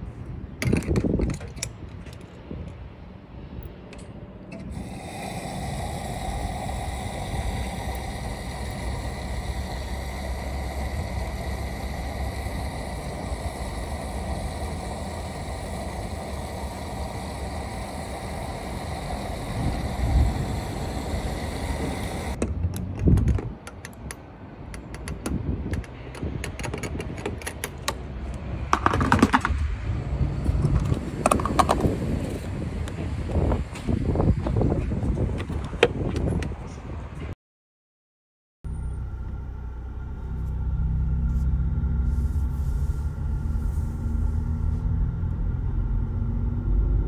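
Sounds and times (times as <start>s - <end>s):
fuel pump hiss and hum: 0.0s - 37.2s, 38.7s - 47.0s
fuel nozzle clicks and knocks: 22.4s - 28.0s.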